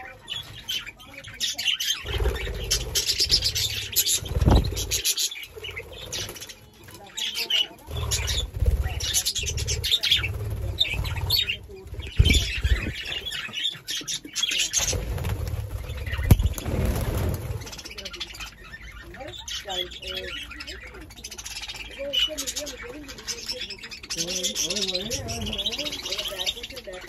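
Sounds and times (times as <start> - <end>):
budgerigars chirping: 0.0 - 27.0
bird wingbeats: 2.1 - 6.5, 7.9 - 13.4, 14.7 - 18.1.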